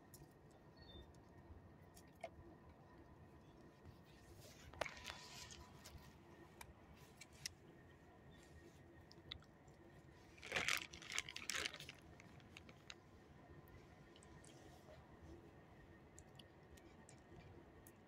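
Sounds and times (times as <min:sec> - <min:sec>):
dog crunching a treat: 0:10.4 - 0:13.0.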